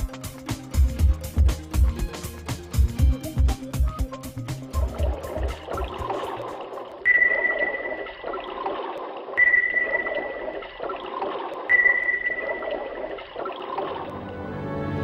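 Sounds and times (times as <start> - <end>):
watery background wash: 0.0 - 15.0
sonar ping: 7.0 - 8.6, 9.4 - 11.1, 11.7 - 13.9.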